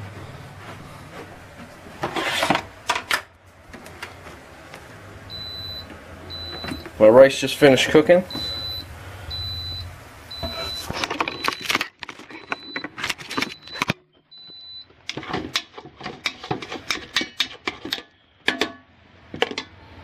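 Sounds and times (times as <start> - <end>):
rice paddle scraping a pot: 2.0 - 2.6, 15.2 - 18.0
high electronic beep: 8.3 - 11.7.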